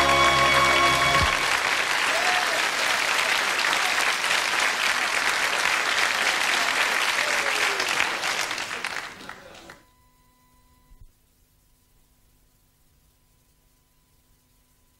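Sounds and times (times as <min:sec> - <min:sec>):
audience applauding: 0:00.0 - 0:09.8
faint steady hum: 0:09.8 - 0:14.9.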